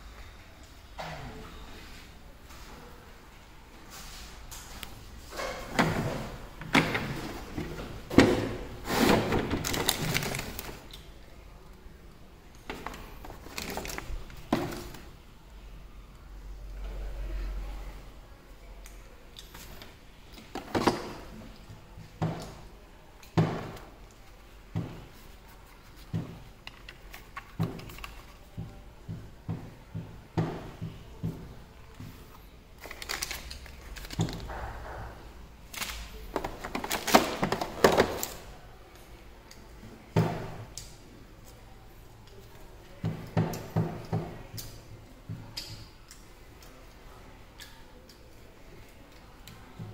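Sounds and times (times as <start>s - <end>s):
paper and plastic bags rustling: 3.9s - 11.1s, 12.7s - 15.1s, 32.7s - 34.8s, 35.6s - 38.6s.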